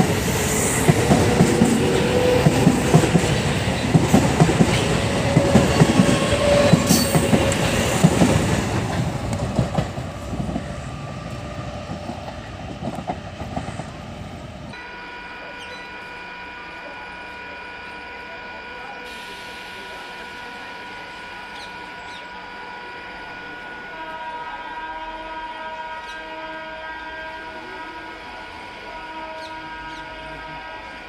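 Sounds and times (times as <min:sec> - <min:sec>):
electric train wheels clattering: 0:00.0 - 0:14.0.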